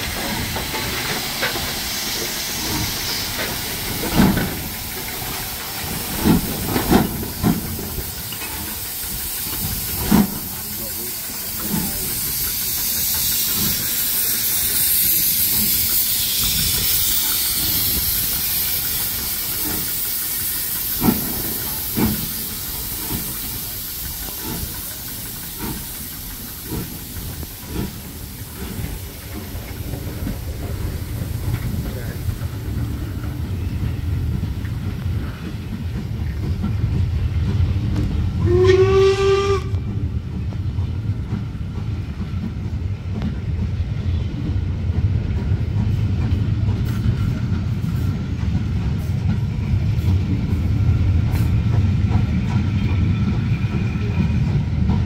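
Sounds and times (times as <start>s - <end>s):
steam hissing loudly: 0.0s - 55.0s
train coaches rumbling: 0.0s - 55.0s
short steam whistle: 38.4s - 39.9s.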